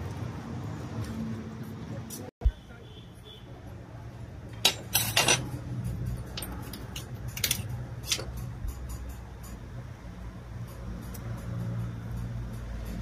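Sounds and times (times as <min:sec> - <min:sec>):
metal parts clinking on vise: 0:04.5 - 0:09.9.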